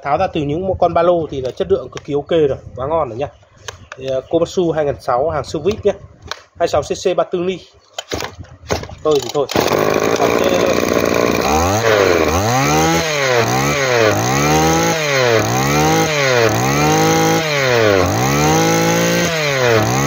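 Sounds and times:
brush-cutter engine revving: 0:09.2 - 0:20.0.

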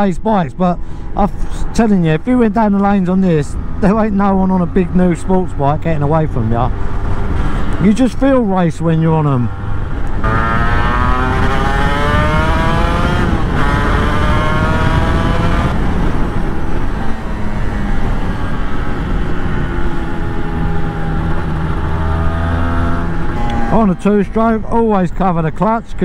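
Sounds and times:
motorcycle engine accelerating: 0:09.2 - 0:24.6
wind rumble on microphone: 0:09.4 - 0:23.7.

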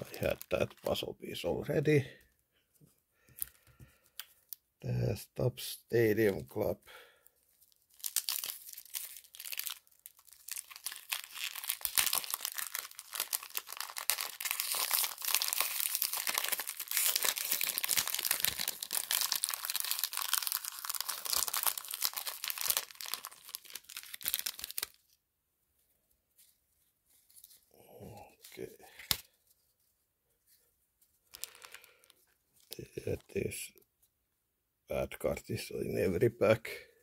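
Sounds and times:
card pack wrapper tearing: 0:07.7 - 0:25.0, 0:31.3 - 0:33.4.

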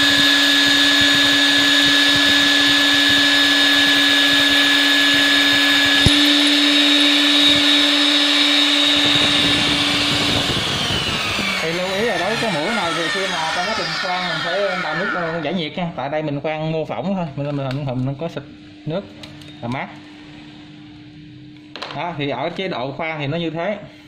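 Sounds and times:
drill motor whine: 0:00.0 - 0:15.7.

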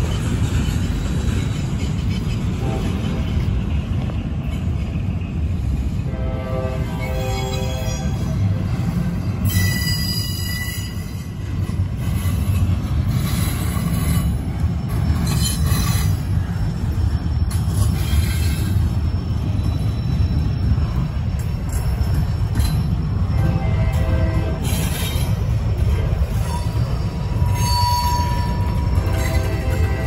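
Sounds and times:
train wheels rumbling on rail: 0:00.0 - 0:30.0
high-pitched wheel squeal: 0:09.4 - 0:11.4, 0:26.3 - 0:30.0.

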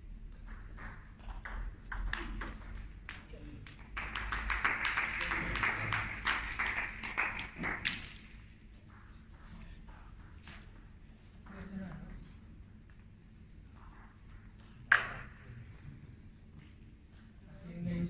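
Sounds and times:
crowd clapping: 0:03.6 - 0:08.5.

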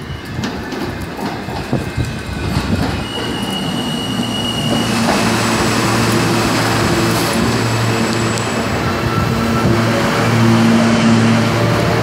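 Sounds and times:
subway wheels knocking on rail: 0:00.4 - 0:07.6
high wheel squeal: 0:02.6 - 0:12.0.

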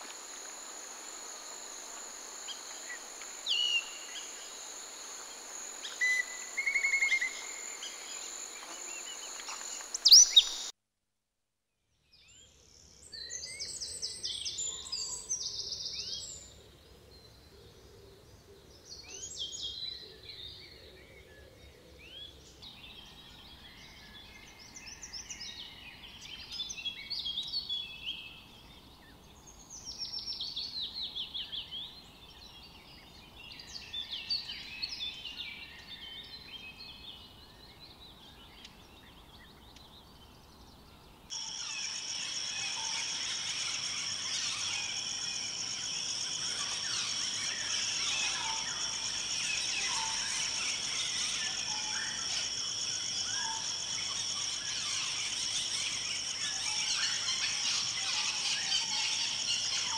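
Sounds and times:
high insect drone: 0:00.0 - 0:10.7, 0:41.3 - 0:59.9
wild birds calling: 0:41.3 - 0:59.9.

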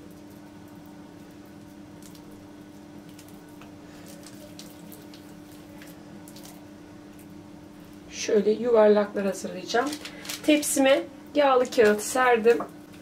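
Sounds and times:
wet squishes of kneaded dough: 0:00.0 - 0:08.1
steady low hum: 0:00.0 - 0:13.0.

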